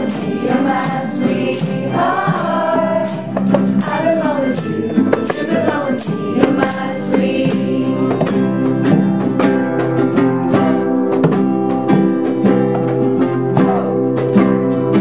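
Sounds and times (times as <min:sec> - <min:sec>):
young voices singing: 0:00.0 - 0:09.4
acoustic guitars strummed: 0:00.0 - 0:15.0.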